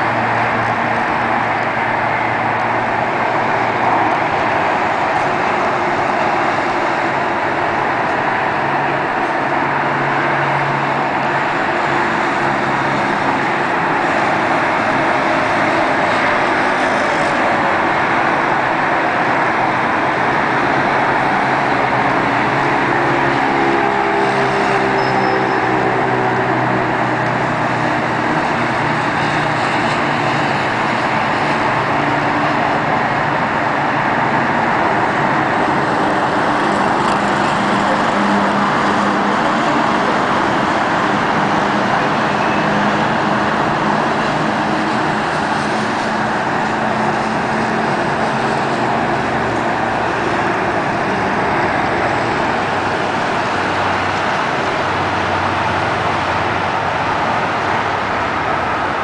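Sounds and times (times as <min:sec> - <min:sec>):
road traffic noise: 0:00.0 - 0:59.0.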